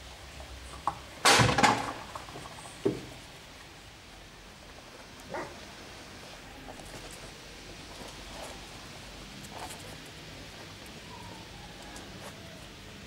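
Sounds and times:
puppy barking: 5.3s - 5.6s
puppy yapping: 5.3s - 5.6s, 11.0s - 12.7s.

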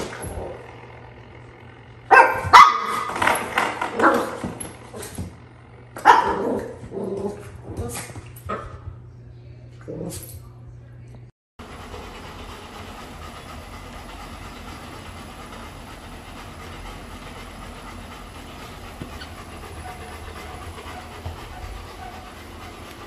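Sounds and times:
treadmill motor and belt whirring: 0.0s - 9.2s, 11.6s - 23.0s
dog panting: 11.6s - 23.0s.

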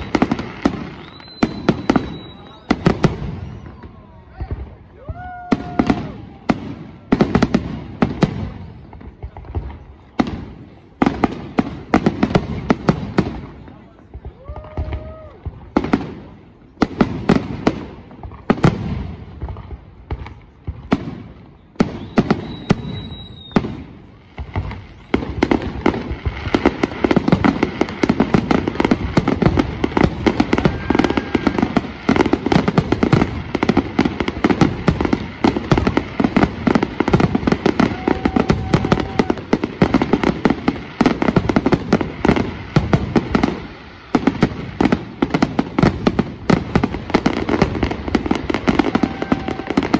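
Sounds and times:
fireworks bangs: 0.0s - 49.9s.

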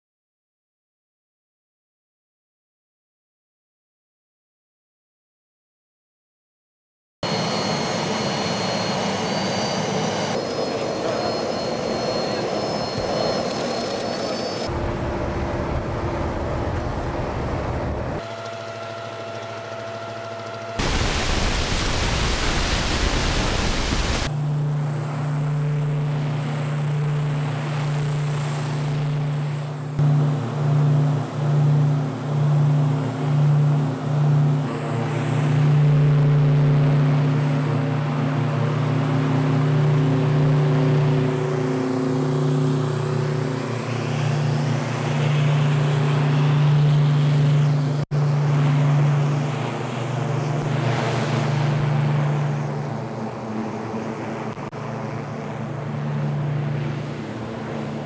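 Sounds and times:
turboprop engines droning: 7.2s - 58.0s
loud hiss: 20.8s - 24.3s.

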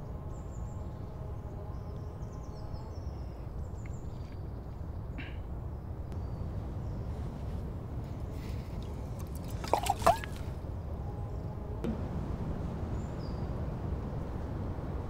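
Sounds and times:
steady low rumble: 5.0s - 9.2s, 10.4s - 15.0s
water splashing and glugging: 8.8s - 10.6s
liquid plops: 9.2s - 10.5s.

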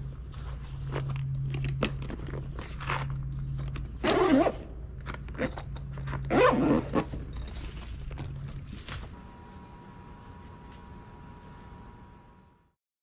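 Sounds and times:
tools clicking and rustling: 0.8s - 9.2s
bag zipper zipping: 4.0s - 7.6s.

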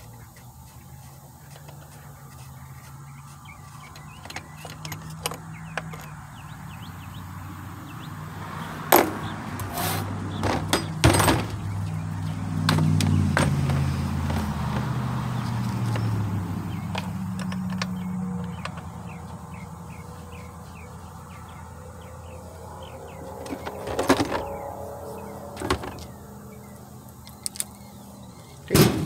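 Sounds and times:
low engine-like hum: 0.0s - 29.0s
metal tools clicking and knocking: 3.8s - 6.3s, 8.9s - 12.0s, 16.9s - 18.9s.

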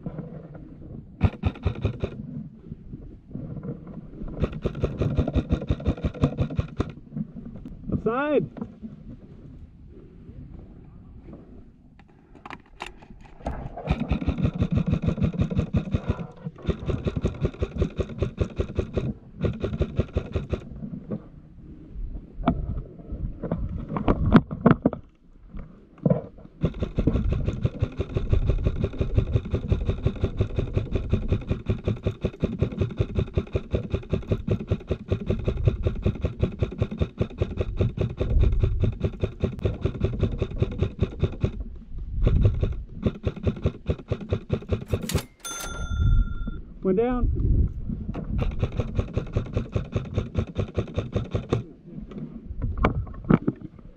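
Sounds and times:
airsoft gun full auto rattle: 1.2s - 2.2s, 4.4s - 7.0s, 13.8s - 20.7s, 26.6s - 41.6s, 42.2s - 46.5s, 48.4s - 51.7s
knocks and clicks: 1.2s - 2.2s, 4.4s - 7.0s, 12.0s - 20.7s, 26.0s - 46.6s, 48.1s - 51.7s.

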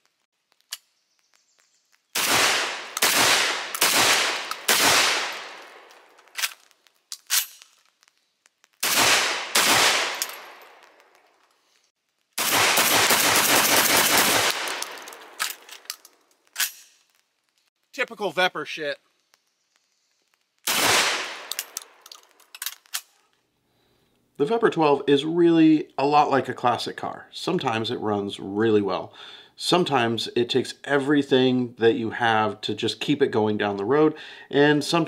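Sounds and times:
shotgun shots with echo: 2.2s - 5.9s, 8.8s - 10.8s, 12.4s - 15.4s, 20.7s - 21.5s
faint clicks: 19.1s - 20.6s.

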